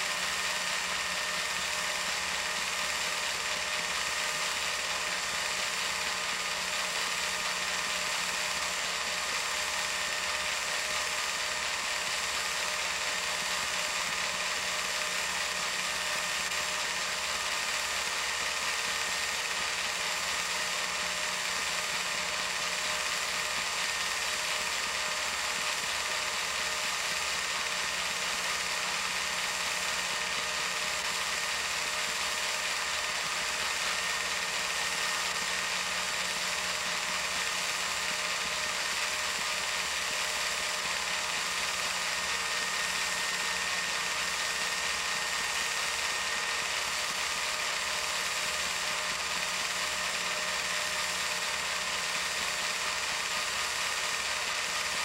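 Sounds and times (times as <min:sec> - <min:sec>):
film projector whirring and clattering: 0:00.0 - 0:55.0.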